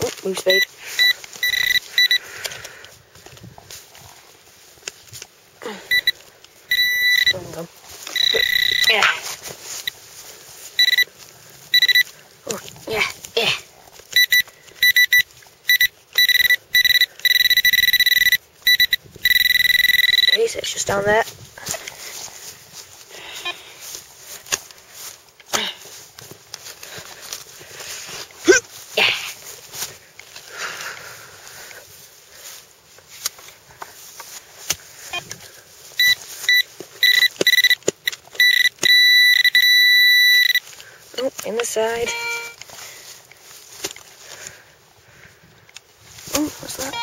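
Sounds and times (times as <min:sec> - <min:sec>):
pinpointer beeping: 0:00.4 - 0:02.3, 0:05.8 - 0:09.2, 0:10.8 - 0:11.1, 0:11.7 - 0:12.1, 0:14.1 - 0:20.6, 0:23.3 - 0:23.6, 0:36.0 - 0:40.6, 0:41.2 - 0:42.6, 0:46.8 - 0:47.0.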